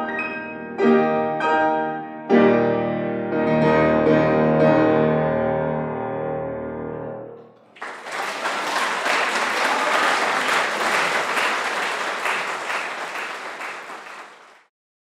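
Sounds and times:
audience applause: 0:07.7 - 0:14.7.

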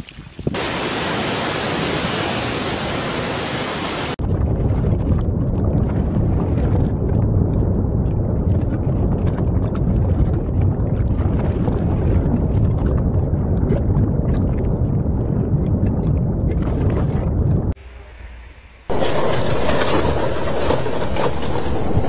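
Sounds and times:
deep volcanic rumble: 0:00.4 - 0:17.8, 0:18.9 - 0:22.0.

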